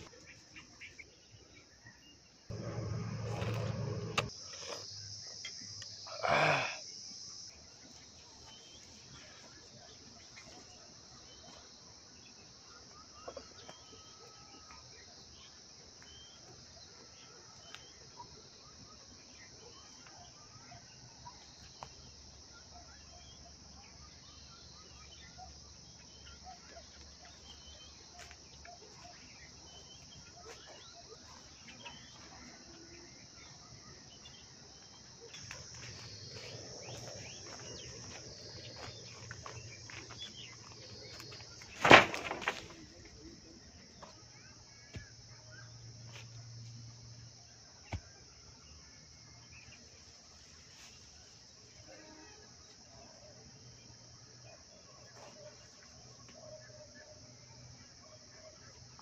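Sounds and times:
insect drone: 0:00.0 - 0:59.0.

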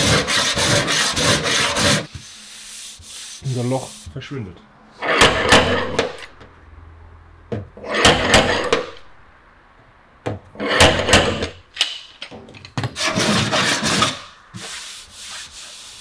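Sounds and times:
body file scraping metal panel: 0:00.0 - 0:02.1, 0:13.0 - 0:16.0.

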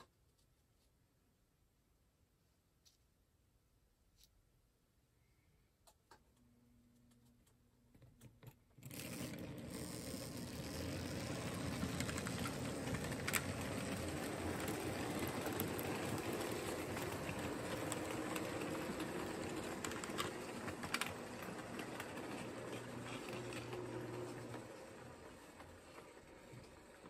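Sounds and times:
model train electric motor: 0:08.8 - 0:27.0
wheels rattling on track: 0:09.3 - 0:27.0.

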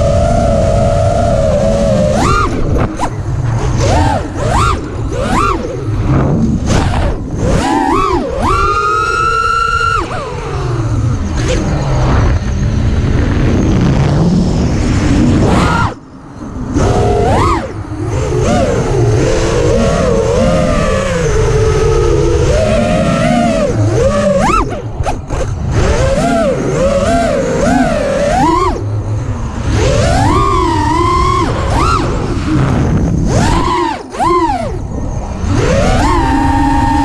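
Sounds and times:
drone motors whining: 0:00.0 - 0:37.0
rush of wind and propeller wash: 0:10.1 - 0:37.0.

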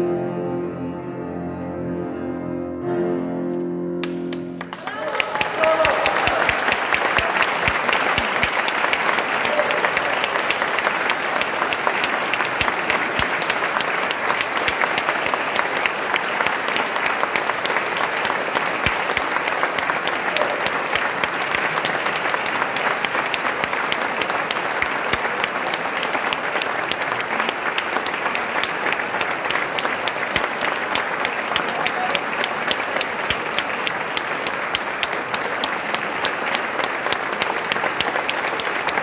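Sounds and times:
audience applauding: 0:04.0 - 0:39.0.

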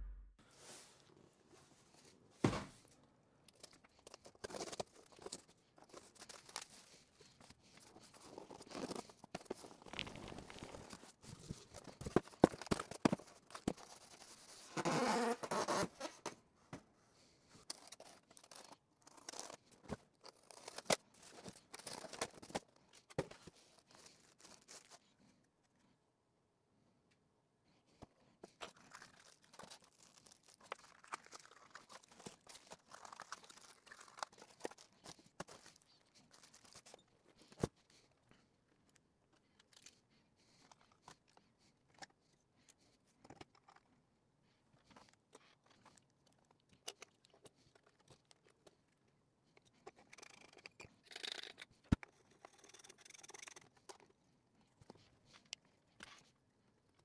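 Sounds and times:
rustling of foam packing: 0:03.6 - 0:16.2, 0:17.7 - 0:25.1, 0:28.6 - 0:38.0.

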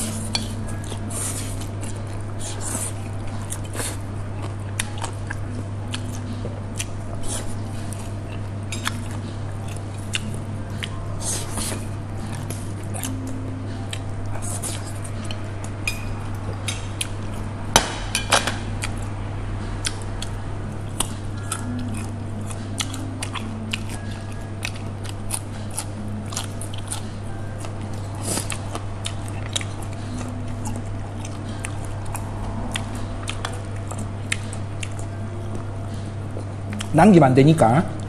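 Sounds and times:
chewing: 0:00.0 - 0:17.5, 0:19.8 - 0:36.9
low hum: 0:00.0 - 0:36.9.

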